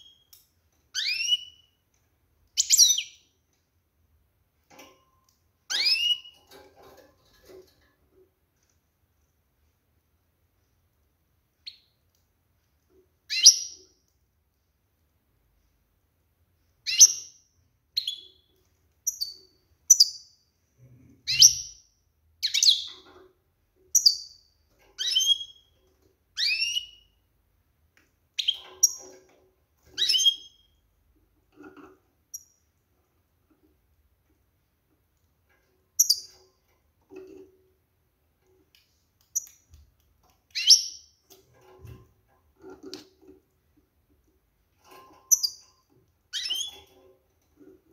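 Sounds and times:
goldfinch chirps: 1.0 - 1.7, 21.3 - 21.8, 22.4 - 23.0, 30.0 - 30.7, 40.5 - 41.1, 46.3 - 46.9.

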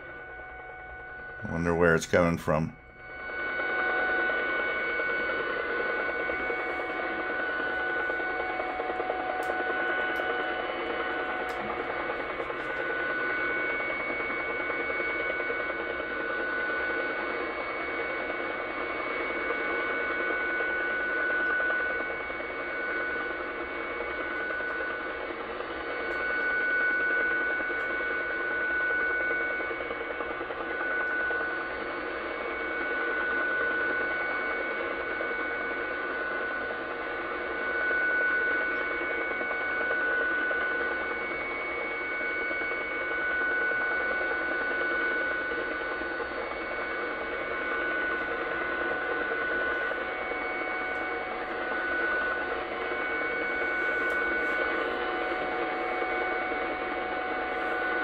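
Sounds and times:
lower radio tone: 0.0 - 58.0
noisy pulsing radio background: 0.0 - 58.0
steady radio tones: 0.9 - 28.4, 45.5 - 58.0.

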